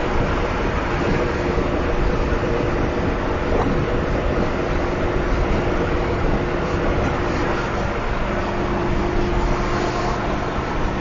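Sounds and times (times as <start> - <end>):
bus cabin drone: 0.0 - 11.0.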